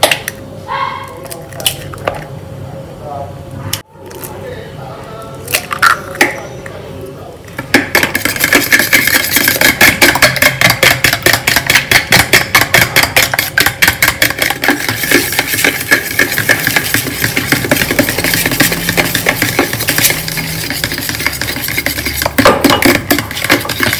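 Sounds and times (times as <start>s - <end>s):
fork whisking eggs in a bowl: 7.6s - 23.9s.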